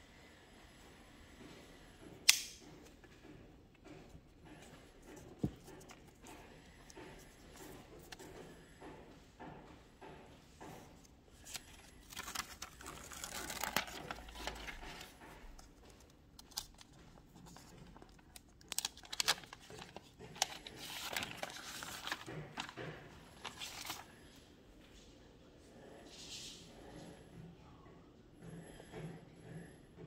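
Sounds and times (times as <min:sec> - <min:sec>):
sharp plastic snaps: 0:02.2 - 0:02.9
plastic film peeling and crinkling: 0:11.4 - 0:15.2, 0:16.4 - 0:24.0.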